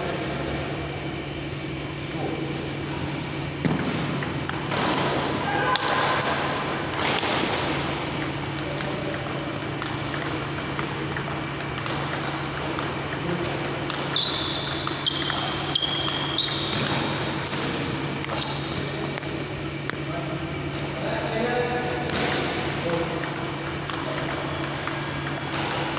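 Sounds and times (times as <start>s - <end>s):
steady low hum: 0.0s - 25.9s
short high squeaks: 4.4s - 4.9s, 5.8s - 8.6s, 14.1s - 17.5s, 18.3s - 19.0s
table tennis ball clicking: 8.0s - 17.6s, 23.2s - 25.6s.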